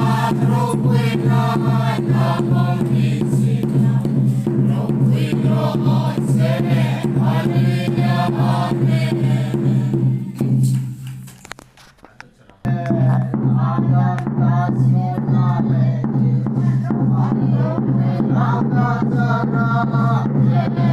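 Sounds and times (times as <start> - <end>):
congregation singing a hymn: 0.0 - 10.4, 16.8 - 20.9
drum beating steadily: 0.0 - 11.4, 12.7 - 20.9.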